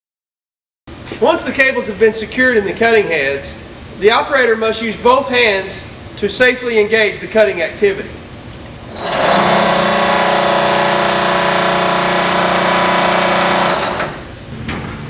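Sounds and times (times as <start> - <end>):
motor hum and whine: 8.1 - 15.0
cable cutting heads cycling: 8.9 - 14.2.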